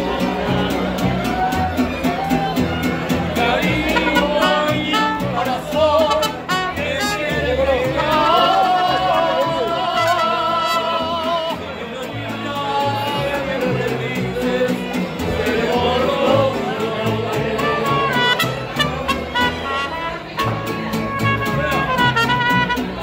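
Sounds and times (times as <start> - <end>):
bass notes: 0.0 - 23.0
strummed guitar: 0.0 - 23.0.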